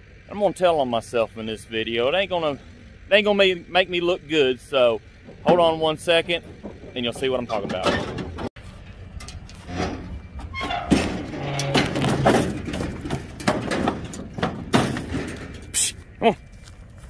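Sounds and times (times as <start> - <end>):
trailer clanks: 2.1 - 15.8
hooves on trailer floor: 4.6 - 17.0.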